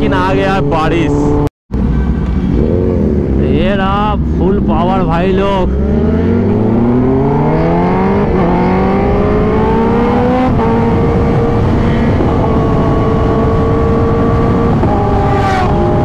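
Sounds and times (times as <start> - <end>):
motorcycle engine accelerating: 2.4 - 16.0
wind rush: 5.8 - 16.0.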